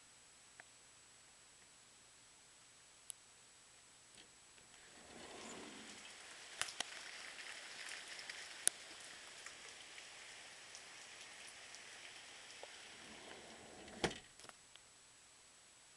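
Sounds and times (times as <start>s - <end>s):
rain falling: 4.8s - 14.2s.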